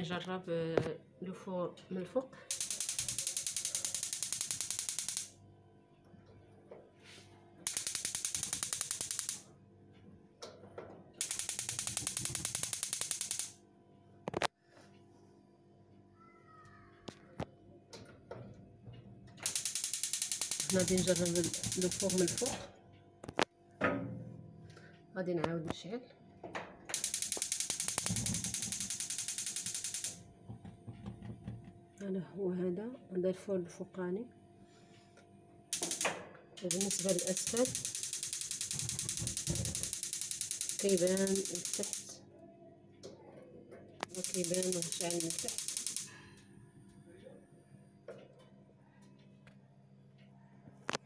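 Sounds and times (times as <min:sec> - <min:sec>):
gas cooker spark igniter ticking: 0:02.5 - 0:05.3, 0:07.7 - 0:09.4, 0:11.2 - 0:13.5, 0:19.4 - 0:22.6, 0:26.9 - 0:30.2, 0:35.8 - 0:42.1, 0:44.0 - 0:46.2
soft knocks: 0:30.5 - 0:31.8.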